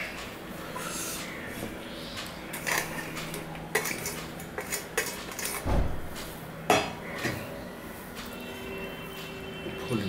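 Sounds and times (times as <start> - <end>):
metal bowl and plate clinking: 3.7 - 5.6.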